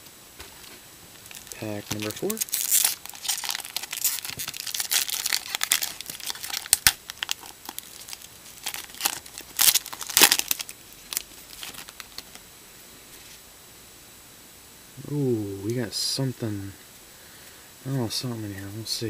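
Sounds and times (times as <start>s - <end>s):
foil wrapper tearing and crinkling: 1.2s - 12.4s.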